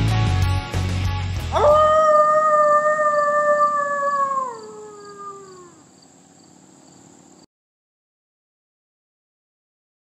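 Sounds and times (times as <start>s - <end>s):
man howling like a wolf: 1.5s - 5.9s.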